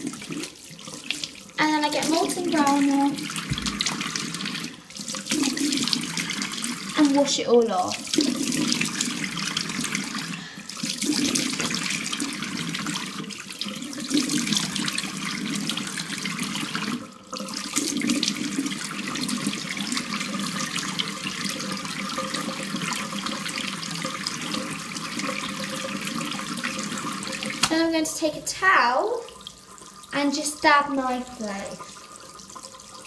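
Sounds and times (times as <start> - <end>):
water splashing on face: 0.0 - 12.3, 27.2 - 27.9
tap running into sink: 2.1 - 4.7, 26.2 - 27.9.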